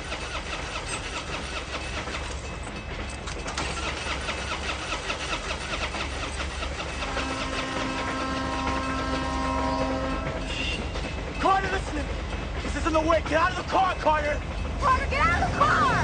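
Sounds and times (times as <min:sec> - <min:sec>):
car engine cranking: 0:00.0 - 0:07.6
train horn: 0:07.0 - 0:10.8.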